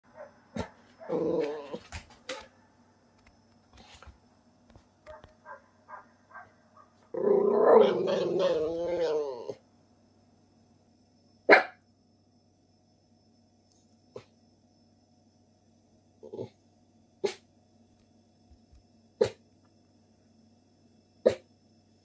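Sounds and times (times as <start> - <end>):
dog growling: 0.2 - 2.0, 5.1 - 9.6, 16.2 - 16.6.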